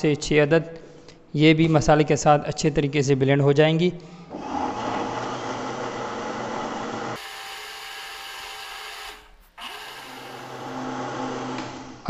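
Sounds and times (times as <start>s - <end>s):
electric blender grinding: 4.4s - 11.8s.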